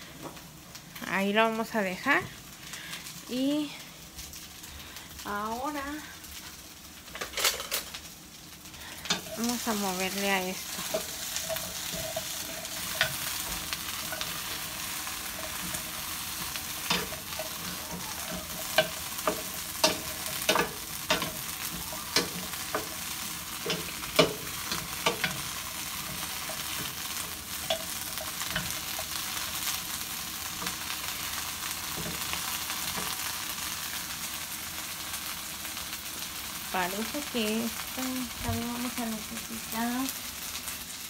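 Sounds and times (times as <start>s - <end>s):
vegetables sizzling in oil: 0.0s - 41.0s
spatula knocking and scraping pan: 9.0s - 29.7s.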